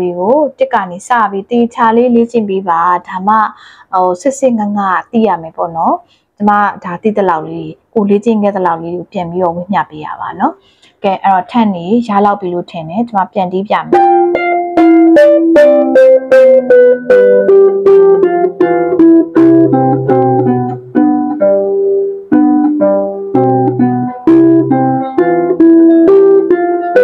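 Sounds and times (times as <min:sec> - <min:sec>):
harp plucked melody: 0:13.9 - 0:27.0.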